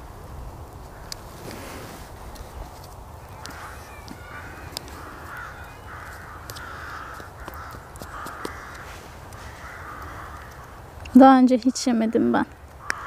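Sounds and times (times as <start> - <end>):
hoarse cawing bird calls: 3.2 - 11.1, 11.7 - 13.0.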